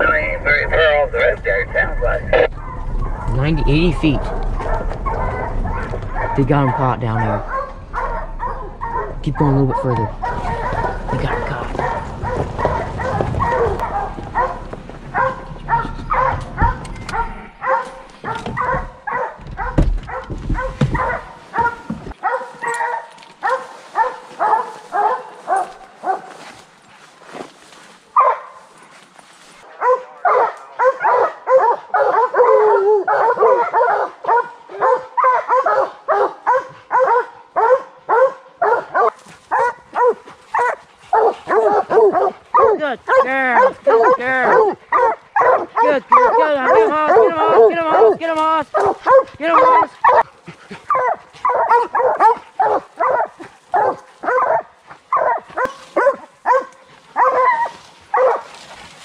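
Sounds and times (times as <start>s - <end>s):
low vehicle rumble: 0.0s - 22.2s
hounds baying: 0.0s - 27.4s, 28.1s - 29.0s, 29.6s - 59.0s.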